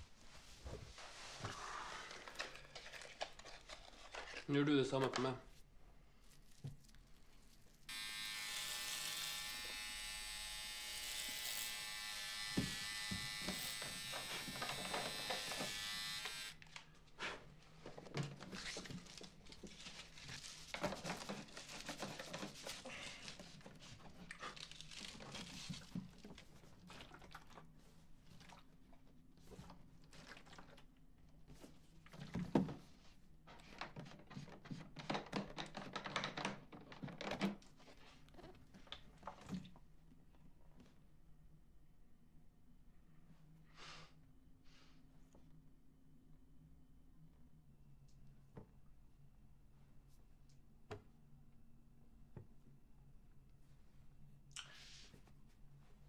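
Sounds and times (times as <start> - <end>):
electric buzz: 7.9 - 16.6.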